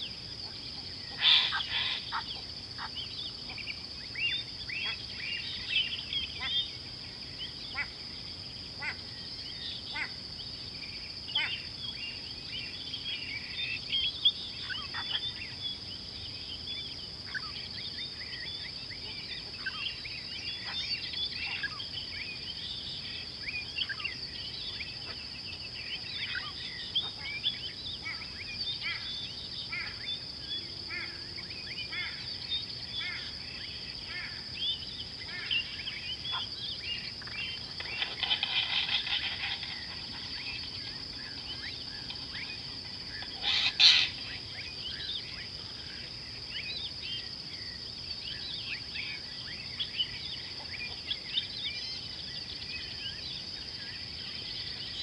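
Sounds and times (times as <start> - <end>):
high-pitched insect drone: 0.0 - 7.2, 29.8 - 50.5
birds chirping: 0.0 - 55.0.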